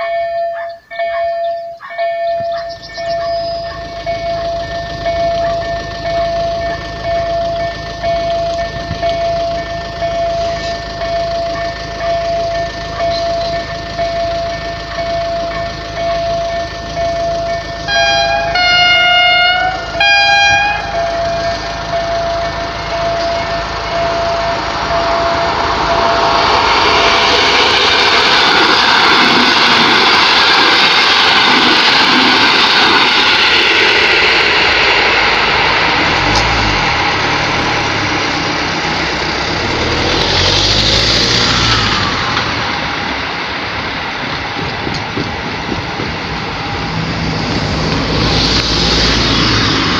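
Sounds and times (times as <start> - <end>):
repeating electronic warning beep: 0.0 - 27.4
train passing: 0.0 - 49.9
train two-tone horn: 10.2 - 26.5.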